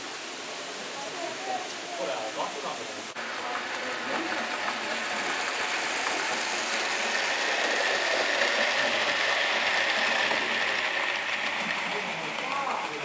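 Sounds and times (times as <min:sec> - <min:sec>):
faint whine of passing train: 0:03.1 - 0:13.0
model train wheels clattering: 0:03.2 - 0:13.0.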